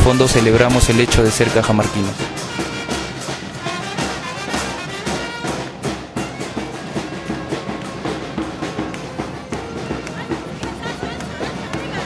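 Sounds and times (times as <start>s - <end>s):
brass band music: 0.0s - 11.5s
drums steady beat: 0.0s - 12.0s.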